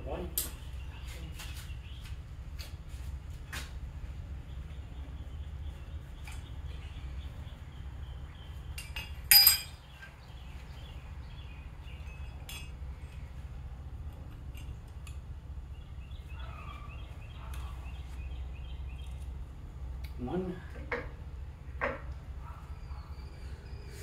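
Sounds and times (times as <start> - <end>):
steady low hum: 0.0 - 24.0
metal engine parts clinking: 8.7 - 10.2, 11.9 - 13.3, 14.1 - 15.2.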